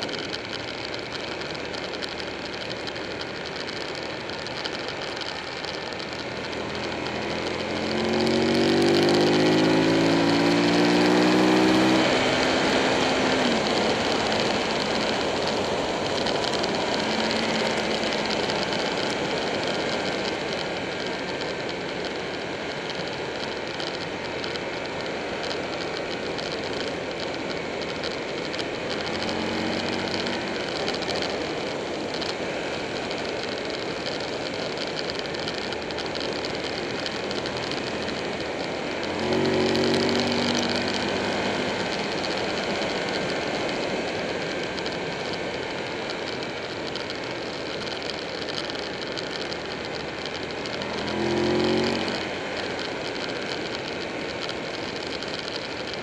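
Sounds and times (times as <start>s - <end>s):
motorcycle engine: 0.0s - 56.0s
wind and road noise rushing: 0.0s - 56.0s.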